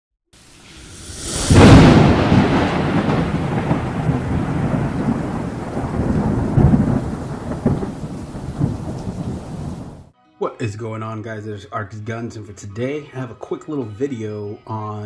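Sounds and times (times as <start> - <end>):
rain-like hiss: 0.4 - 10.1
loud hit: 0.5 - 5.1
thunder-like rumble: 0.6 - 10.1.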